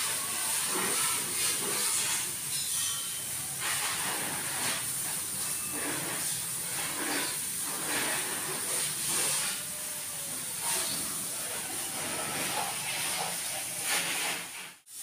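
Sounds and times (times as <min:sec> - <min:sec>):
water spray hissing: 0:00.0 - 0:15.0
wash mitt rubbing on van body: 0:03.6 - 0:09.6, 0:10.7 - 0:14.8.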